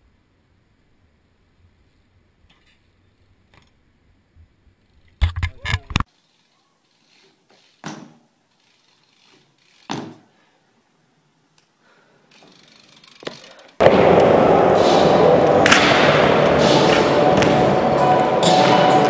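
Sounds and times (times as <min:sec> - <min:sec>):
bike clattering on paving stones: 0:07.2 - 0:10.3, 0:12.4 - 0:13.8
bike thumps: 0:07.5 - 0:08.3, 0:09.3 - 0:10.3.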